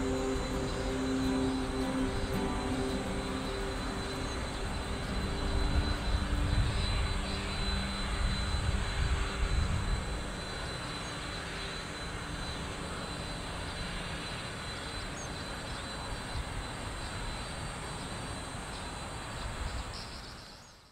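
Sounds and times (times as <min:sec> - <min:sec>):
jet airliner taking off: 0:00.0 - 0:19.7.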